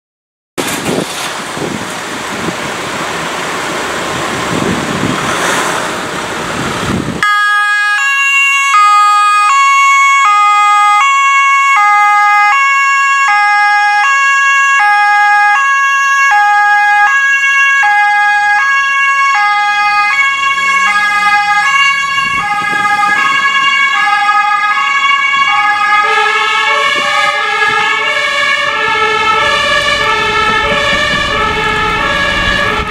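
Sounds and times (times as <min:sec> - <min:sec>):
steady rushing noise: 0:00.6 - 0:07.2, 0:28.9 - 0:32.9
two-tone ambulance siren: 0:07.2 - 0:32.9.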